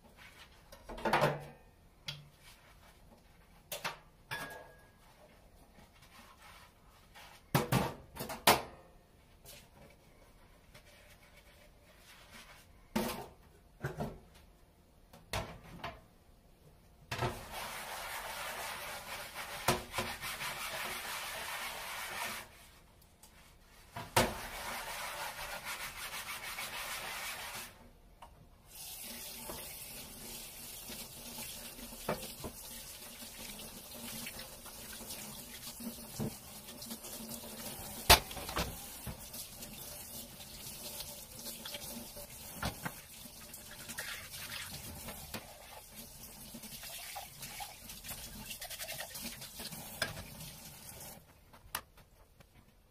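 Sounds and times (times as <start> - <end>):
dishes clinking: 4.3 - 4.9
tap water running: 28.7 - 51.3.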